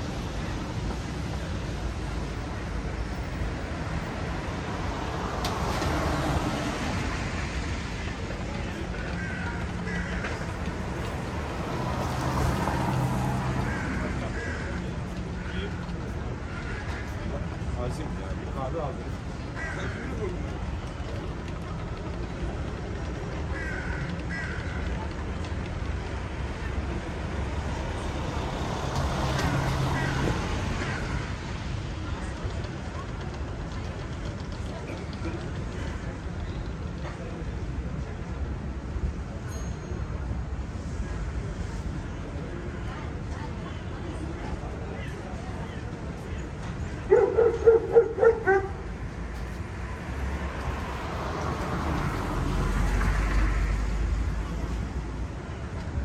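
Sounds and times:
low rumble of traffic: 0.0s - 56.0s.

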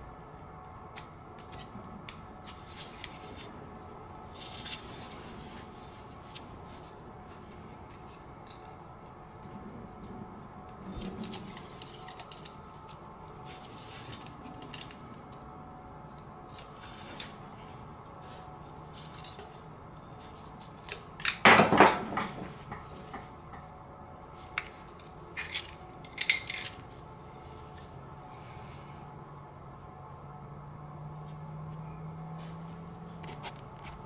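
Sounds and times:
metal engine parts clinking: 24.6s - 27.0s.

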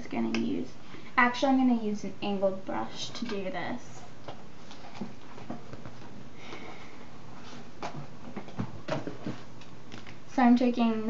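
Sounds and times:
makeup brushes clicking and rustling: 3.0s - 6.2s.

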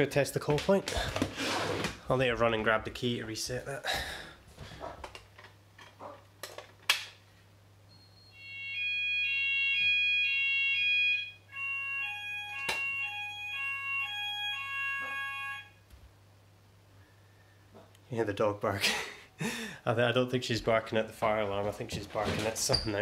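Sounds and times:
fire alarm alternating tones: 7.9s - 15.8s.

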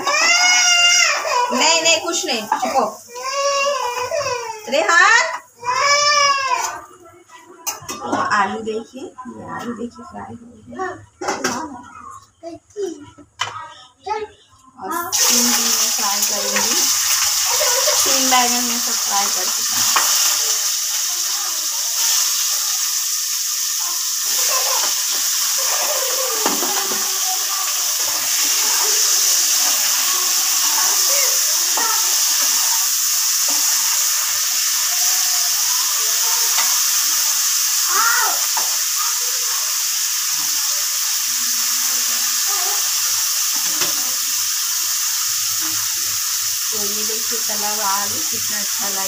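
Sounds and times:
potatoes sizzling in hot oil: 0.0s - 6.8s, 14.9s - 49.0s
stirring in a pan: 15.2s - 49.0s.

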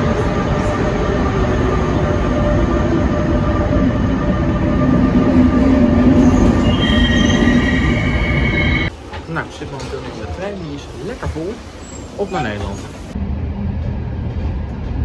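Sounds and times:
train wheels rumbling: 0.0s - 15.0s
high-pitched train brake squeal: 6.1s - 8.9s.

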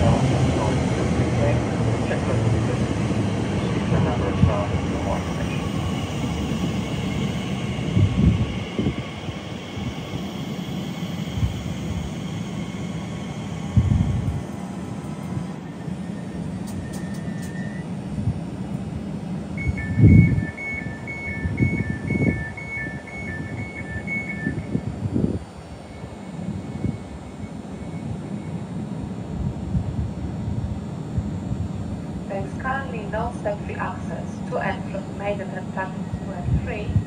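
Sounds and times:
electric train humming: 0.0s - 37.0s
two-tone door warning beeps: 19.6s - 25.0s.

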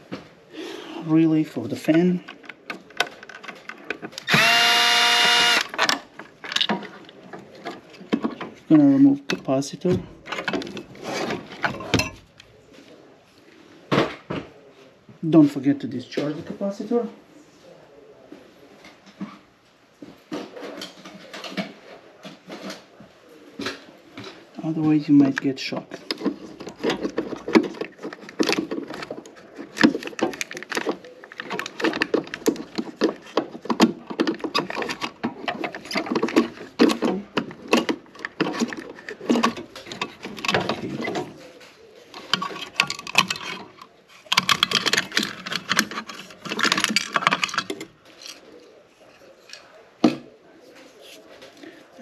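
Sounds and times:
screwdriver clicking and rattling: 2.4s - 6.7s, 42.2s - 48.4s.

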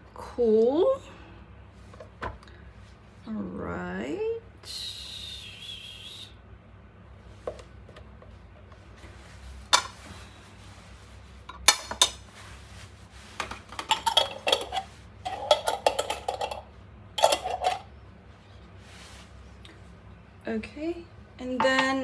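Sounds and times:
utensils clinking against dishes: 13.4s - 17.9s.

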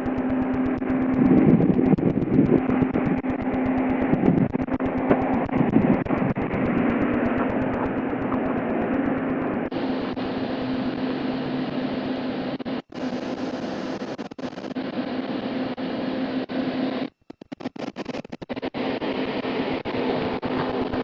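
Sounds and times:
low hum: 0.0s - 21.0s
steady rushing noise: 0.0s - 21.0s
clicks and crackles: 17.2s - 18.7s.

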